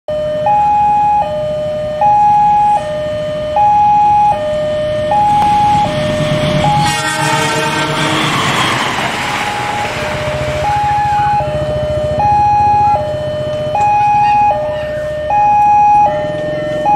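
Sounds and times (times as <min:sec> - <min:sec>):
train rushing past: 0:04.3 - 0:13.2
locomotive horn: 0:05.1 - 0:11.7.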